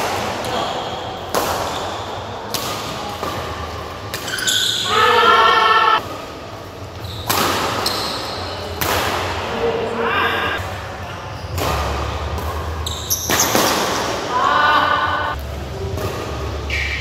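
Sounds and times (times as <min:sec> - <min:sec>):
rackets hitting shuttlecock: 0:00.0 - 0:04.8, 0:07.2 - 0:09.4, 0:11.5 - 0:14.2, 0:15.3 - 0:17.0.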